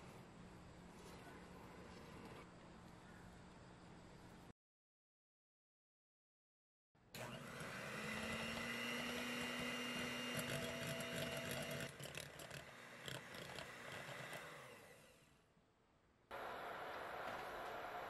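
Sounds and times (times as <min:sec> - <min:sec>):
electric hand mixer whirring: 0:07.2 - 0:15.2.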